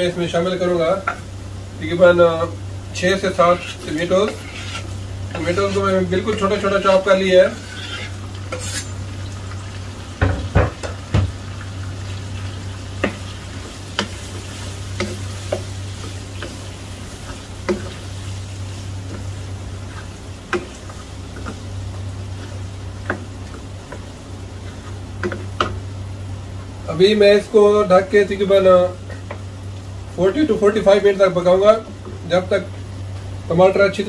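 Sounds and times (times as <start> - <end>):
meat sizzling: 0.0 - 34.0
steady low hum: 0.0 - 34.0
wooden spatula scraping a pan: 3.2 - 9.0, 13.0 - 25.8.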